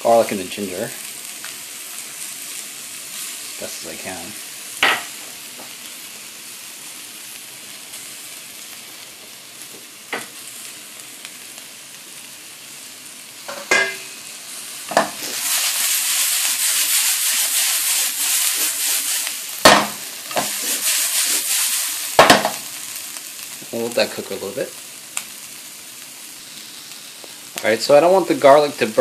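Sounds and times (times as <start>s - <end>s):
vegetables sizzling in a wok: 0.0s - 29.0s
sharp knocks against pan: 4.8s - 5.1s, 13.5s - 14.1s, 19.7s - 20.5s, 22.2s - 22.6s.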